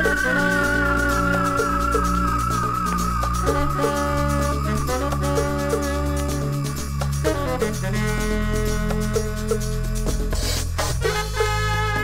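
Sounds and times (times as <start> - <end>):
high wavering falling tone: 0.0 - 9.1
bass and chord music: 0.0 - 12.0.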